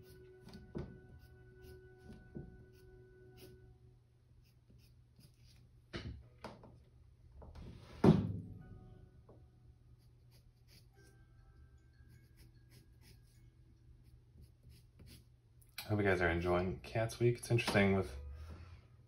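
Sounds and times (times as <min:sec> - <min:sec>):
colored pencil scratching on paper: 0:00.0 - 0:03.6, 0:04.4 - 0:05.7, 0:09.9 - 0:11.1, 0:12.0 - 0:15.3.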